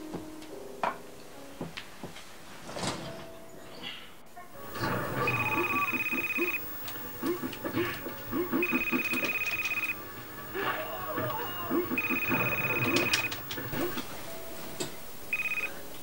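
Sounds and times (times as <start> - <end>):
telephone ringing: 4.6 - 14.2, 15.2 - 16.0
video game music: 4.6 - 14.7.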